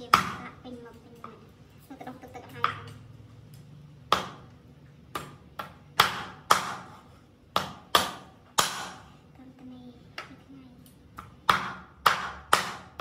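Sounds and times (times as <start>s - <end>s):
knife chopping meat on wooden board: 4.1s - 4.5s, 5.1s - 9.1s, 11.2s - 13.0s.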